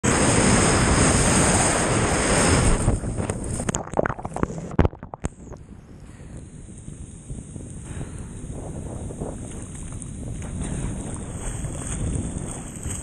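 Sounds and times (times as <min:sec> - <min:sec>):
breaking surf rushing: 0:00.0 - 0:03.7
muffled underwater churning: 0:00.1 - 0:05.6, 0:07.9 - 0:13.0
wind buffeting microphone: 0:00.1 - 0:13.0.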